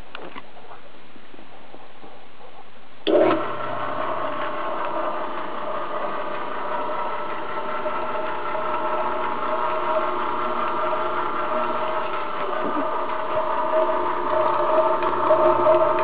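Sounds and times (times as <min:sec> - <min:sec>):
mixer switch clunk: 0:03.1 - 0:03.5
mixer motor humming: 0:03.1 - 0:16.0.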